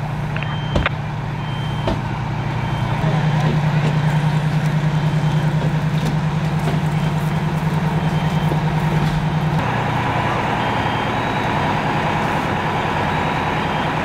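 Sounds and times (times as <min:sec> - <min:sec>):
fire truck engine drone: 0:00.0 - 0:14.0.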